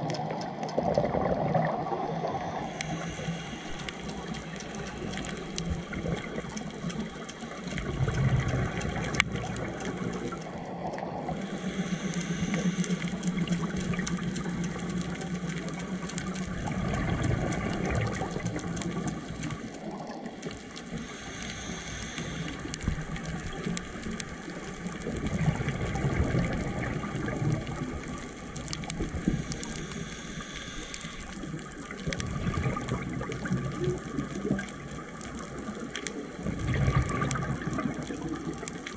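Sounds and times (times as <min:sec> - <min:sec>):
bubbling exhale underwater: 0:00.0 - 0:20.4, 0:21.0 - 0:38.9
regulator hiss on inhale: 0:02.0 - 0:06.5, 0:11.2 - 0:13.8, 0:20.8 - 0:24.4, 0:29.2 - 0:32.0.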